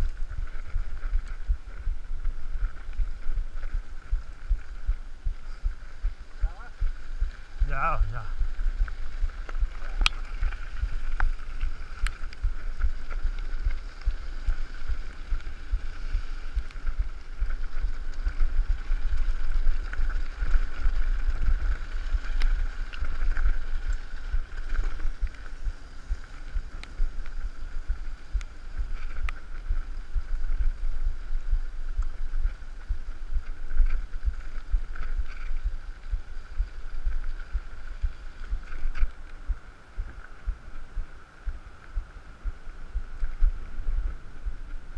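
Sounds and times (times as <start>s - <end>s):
tyres on gravel: 0.0s - 44.9s
wind buffeting microphone: 0.0s - 44.9s
bike clicks and rattles: 8.6s - 30.8s, 31.9s - 39.5s.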